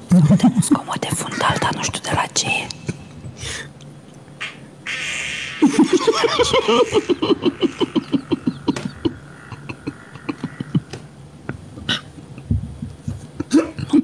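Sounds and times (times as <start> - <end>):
breathy rush: 1.3 - 3.8
person laughing hard: 5.6 - 11.0.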